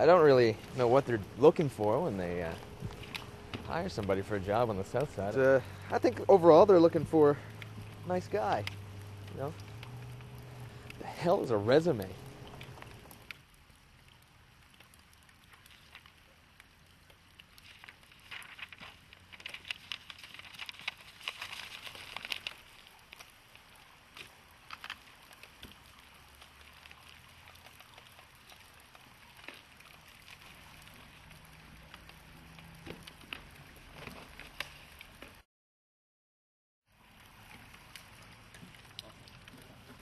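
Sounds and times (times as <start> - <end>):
paper crackling and rustling: 0.0 - 13.3, 17.4 - 31.1.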